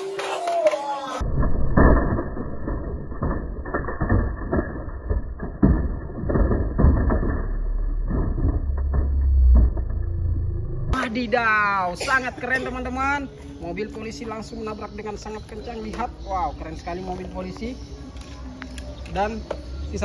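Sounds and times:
toy trucks rolling down wooden ramp: 0:00.0 - 0:10.5
toys thudding and clattering: 0:00.1 - 0:11.2
low rumble: 0:01.2 - 0:11.0.

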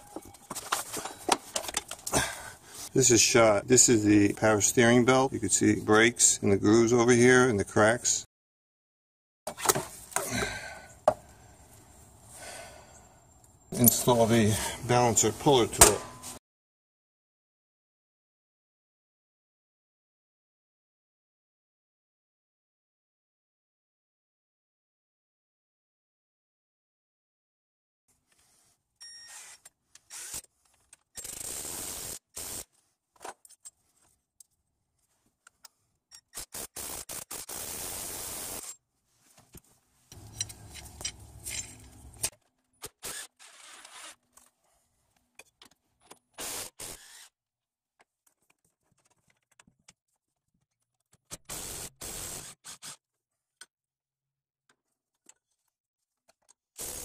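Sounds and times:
hand tools clinking on engine parts: 0:40.2 - 0:42.3.

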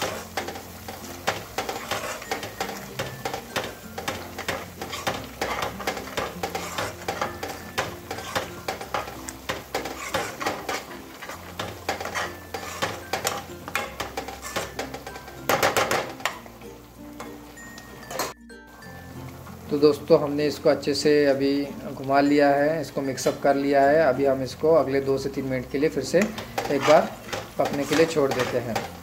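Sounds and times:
metal spatula scraping a pan: 0:00.0 - 0:16.6, 0:25.3 - 0:29.0.

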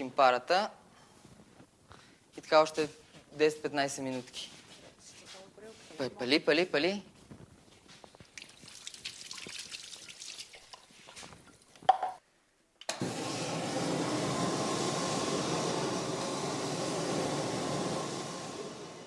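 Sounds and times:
clatter and water at sink: 0:08.2 - 0:12.1
oven burner rushing: 0:12.9 - 0:19.0.

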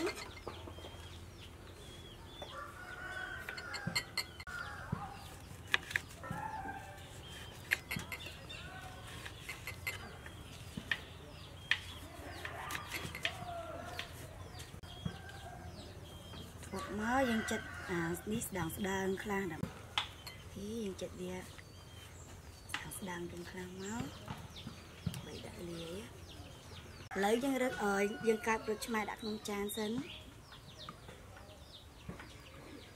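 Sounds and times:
chickens clucking: 0:00.0 - 0:05.4.

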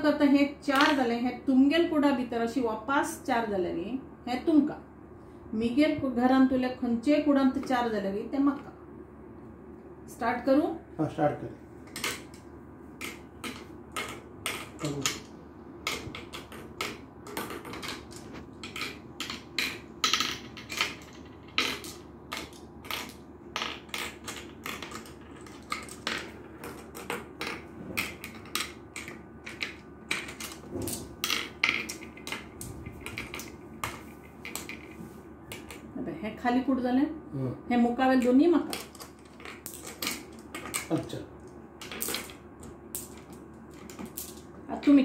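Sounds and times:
marbles clicking into wooden pits: 0:15.9 - 0:35.9, 0:41.8 - 0:42.4.

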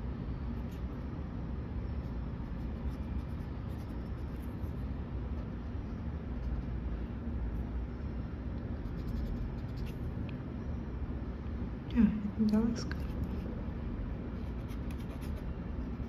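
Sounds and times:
low background rumble: 0:00.0 - 0:16.0
pen scratching on paper: 0:02.5 - 0:04.8, 0:08.8 - 0:10.0, 0:14.4 - 0:16.0.

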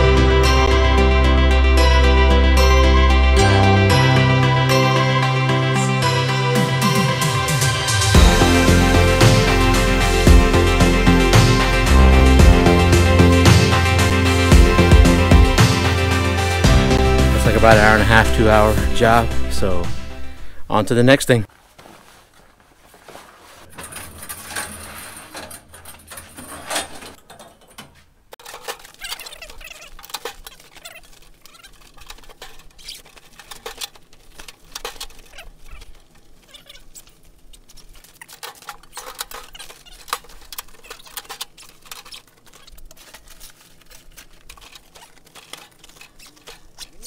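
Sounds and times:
fabric rustling and crinkling: 0:21.5 - 0:47.0
handling clicks and knocks: 0:23.6 - 0:47.0.

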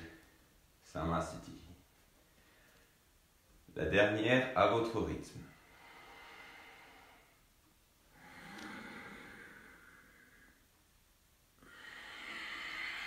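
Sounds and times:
man breathing slowly: 0:02.2 - 0:03.0, 0:05.4 - 0:10.9, 0:11.6 - 0:13.0.

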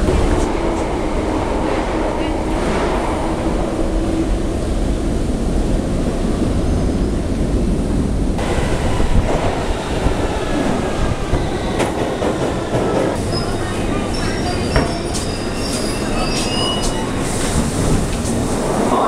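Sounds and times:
underground train rumbling: 0:00.0 - 0:19.0
metallic wheel squeal: 0:13.3 - 0:17.2.

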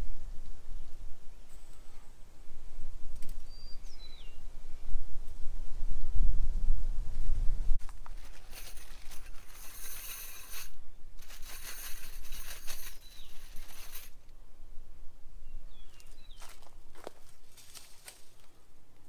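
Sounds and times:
faint bird chirps: 0:03.3 - 0:04.9, 0:15.4 - 0:16.7
wire scraping and rustling: 0:07.8 - 0:14.2.

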